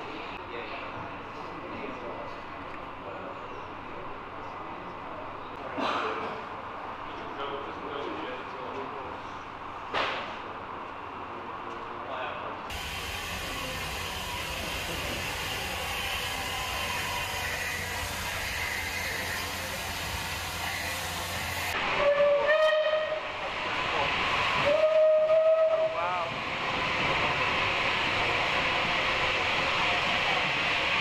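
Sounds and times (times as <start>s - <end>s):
steam hissing: 12.7s - 31.0s
steam locomotive whistle: 12.8s - 23.4s, 24.5s - 26.3s.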